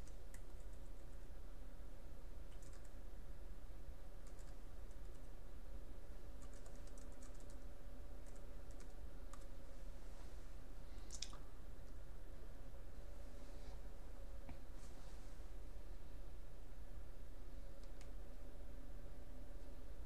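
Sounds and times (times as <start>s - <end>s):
computer keyboard keys clicking: 0.0s - 0.8s, 2.5s - 3.0s, 4.2s - 5.2s, 6.4s - 7.6s, 8.2s - 9.5s
low electrical hum: 0.0s - 20.0s.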